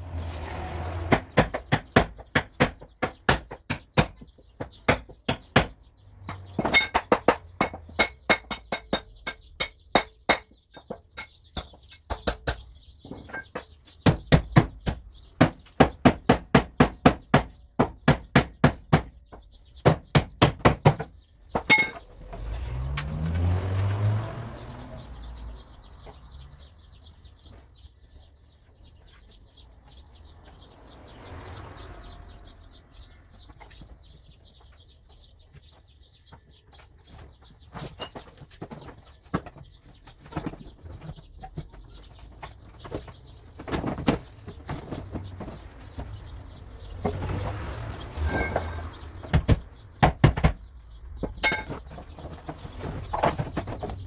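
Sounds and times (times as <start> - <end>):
faint birds chirping: 0.0 - 54.0
engine rising and falling: 22.1 - 26.6.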